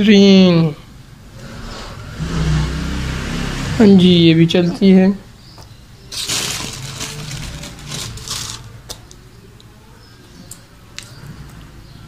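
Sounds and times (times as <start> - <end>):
rustling handling noise: 6.1 - 9.2.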